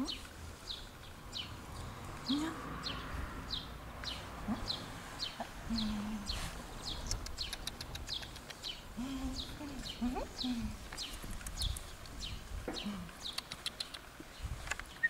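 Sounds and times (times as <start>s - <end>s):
run of clicks: 7.1s - 8.8s, 13.3s - 14.9s.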